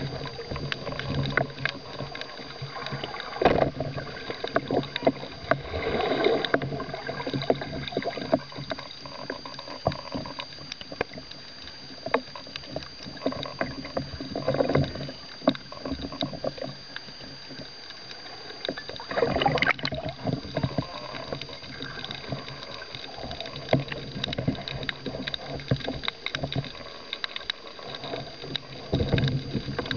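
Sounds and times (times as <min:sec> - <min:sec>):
clicks underwater: 0:00.0 - 0:29.9
water swishing underwater: 0:00.0 - 0:29.9
water gushes: 0:18.8 - 0:25.4.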